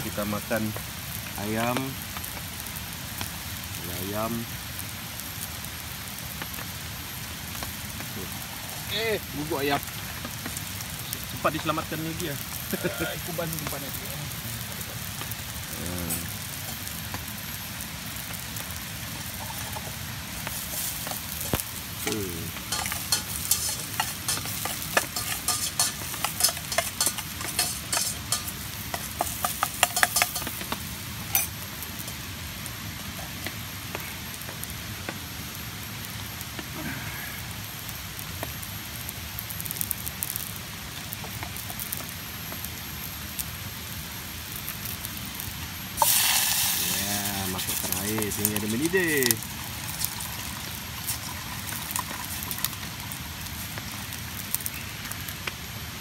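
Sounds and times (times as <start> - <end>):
chicken sizzling in a pan: 0.0 - 56.0
loud hiss: 0.0 - 56.0
spatula scraping a pan: 22.7 - 30.6.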